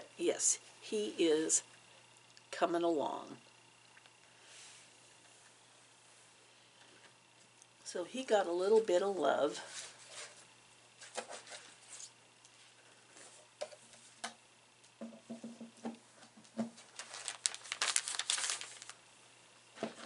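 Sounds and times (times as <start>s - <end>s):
cloth and paper rustling: 16.8s - 19.0s.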